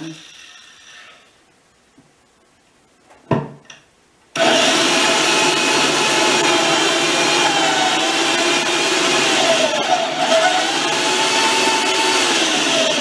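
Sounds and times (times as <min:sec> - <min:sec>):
power drill boring into log: 0:04.4 - 0:13.0.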